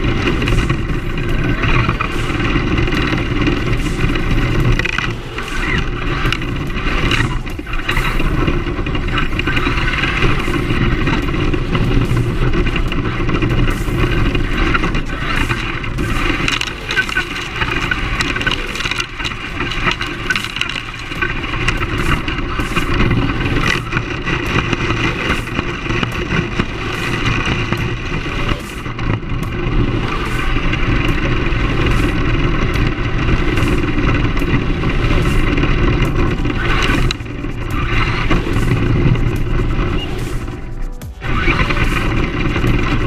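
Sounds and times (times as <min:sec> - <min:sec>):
electric motor whining: 0:00.0 - 0:43.0
tyres rumbling on gravel: 0:00.0 - 0:43.0.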